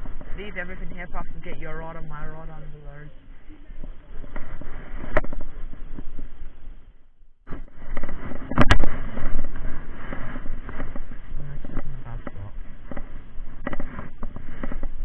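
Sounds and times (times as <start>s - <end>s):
clothing and grass rustling: 2.8s - 6.8s.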